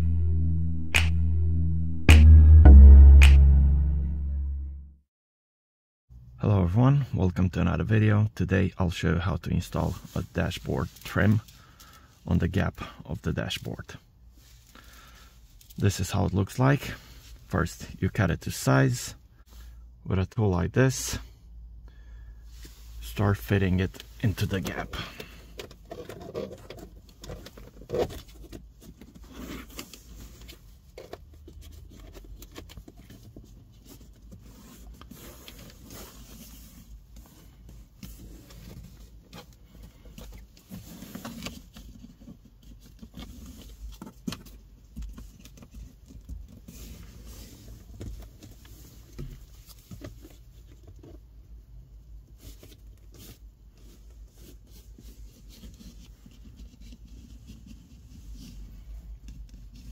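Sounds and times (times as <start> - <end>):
low steady rumble: 0.0 - 4.9
small clicks and scrapes: 52.2 - 59.9.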